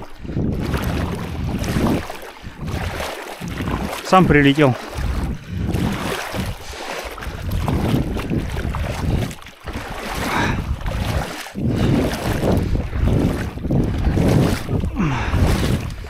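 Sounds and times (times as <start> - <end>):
legs wading through water: 0.0 - 16.0.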